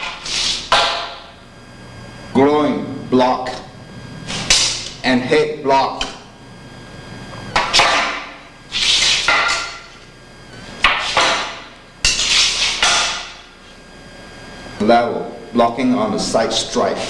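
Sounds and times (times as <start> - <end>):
swords clacking against staff: 9.0 - 9.8, 12.1 - 13.4.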